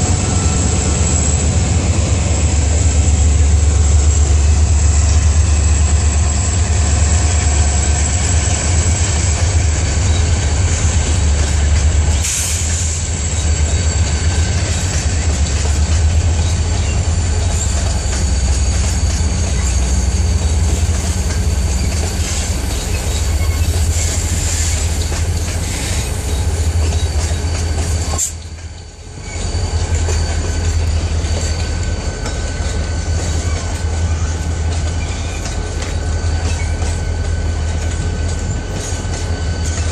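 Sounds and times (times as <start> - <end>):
freight train wheels rumbling: 0.0 - 39.9
wheels clickety-clack over joints: 13.4 - 39.9.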